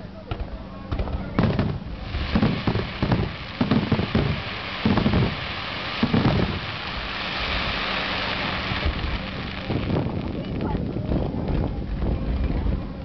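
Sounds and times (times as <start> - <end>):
fireworks booming: 1.1 - 11.6
fireworks crackling hiss: 1.4 - 11.2.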